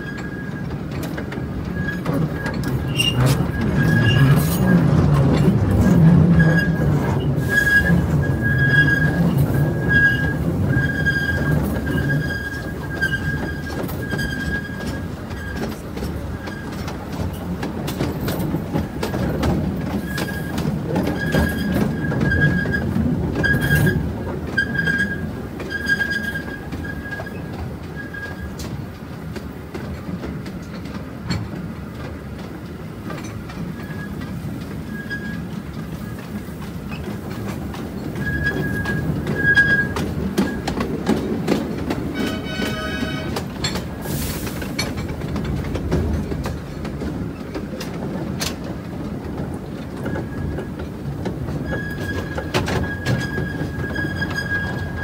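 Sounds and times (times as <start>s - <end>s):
high wheel squeal: 0.0s - 0.7s, 1.7s - 4.8s, 6.4s - 15.7s, 24.6s - 28.6s, 34.8s - 36.2s, 38.0s - 40.7s, 42.1s - 44.6s, 51.6s - 55.0s
small train running: 0.0s - 55.0s
wheels clicking on rails: 0.0s - 55.0s.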